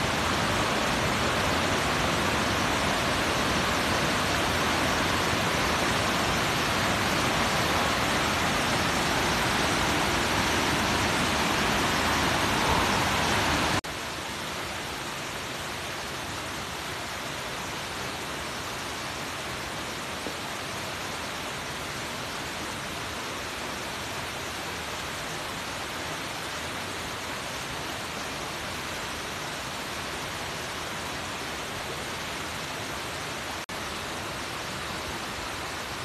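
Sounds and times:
waterfall crashing into pool: 0.0s - 14.3s.

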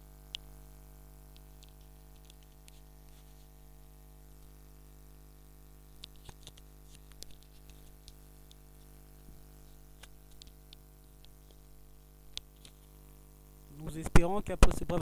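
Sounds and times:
low electrical hum: 0.0s - 15.0s
computer mouse clicks: 1.3s - 3.3s, 6.0s - 8.9s, 10.0s - 11.7s, 12.3s - 12.9s.

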